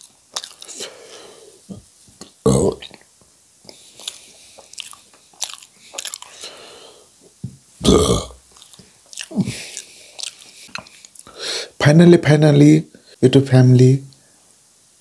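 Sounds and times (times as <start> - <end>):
man chewing and smacking: 0.0 - 1.0, 1.7 - 7.4, 8.4 - 11.4
man burping: 2.4 - 3.0, 7.8 - 8.4.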